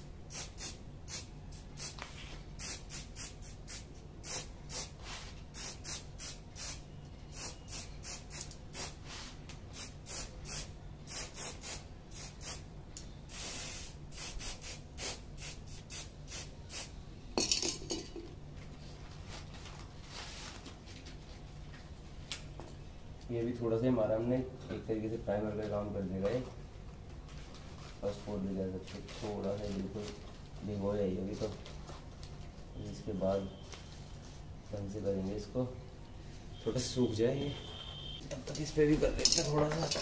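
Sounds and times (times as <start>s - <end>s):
spray can hissing bursts: 0.3s - 2.0s, 2.6s - 12.7s, 13.3s - 17.0s.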